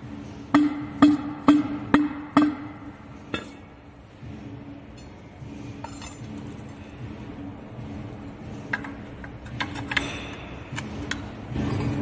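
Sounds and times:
steady low hum: 0:00.0 - 0:12.0
hammer tapping metal: 0:00.5 - 0:03.7.

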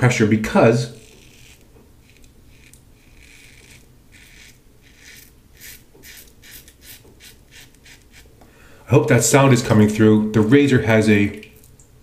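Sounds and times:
razor rasping through stubble: 0:00.9 - 0:08.3.

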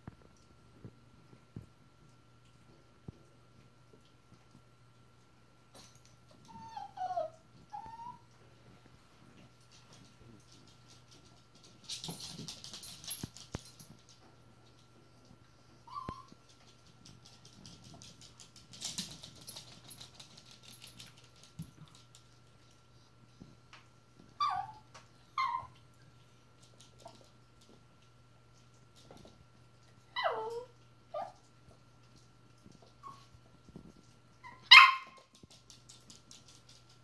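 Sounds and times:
dog whimpering: 0:06.5 - 0:08.3, 0:24.4 - 0:24.8, 0:25.4 - 0:25.8, 0:30.2 - 0:31.4
dogs scuffling on hard floor: 0:07.9 - 0:24.3, 0:31.7 - 0:37.0
dog yelping: 0:24.4 - 0:24.8, 0:25.4 - 0:25.8, 0:30.2 - 0:31.4, 0:34.5 - 0:35.2.

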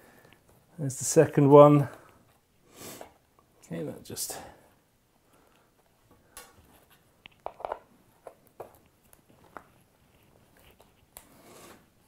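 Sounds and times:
handling rustle: 0:05.4 - 0:12.0.

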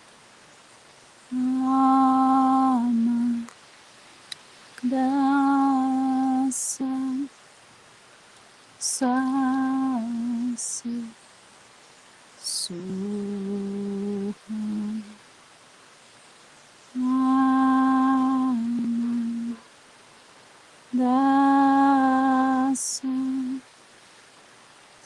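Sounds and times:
woman humming: 0:01.3 - 0:03.5, 0:12.4 - 0:15.2, 0:17.0 - 0:19.6.

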